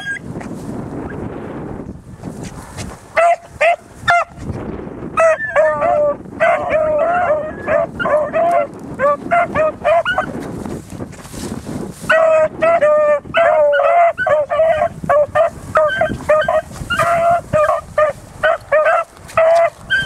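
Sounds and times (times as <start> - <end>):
dogs baying: 3.2 - 4.4, 5.2 - 10.4, 12.1 - 20.0.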